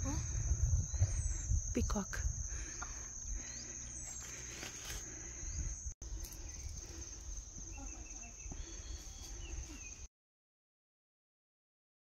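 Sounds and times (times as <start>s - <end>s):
insects trilling: 0.0s - 10.1s
faint bird chirps: 2.8s - 10.1s.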